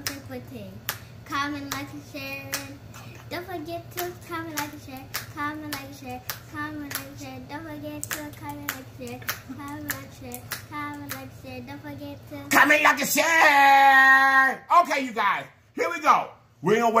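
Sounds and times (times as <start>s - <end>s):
rhythmic hand clapping: 0.0s - 11.4s.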